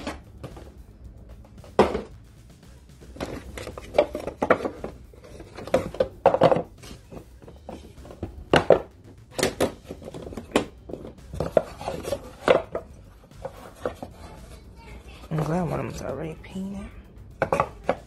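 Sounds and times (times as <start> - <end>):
hard plastic knocks and scrapes: 1.4 - 2.2, 3.0 - 14.6, 17.4 - 18.0.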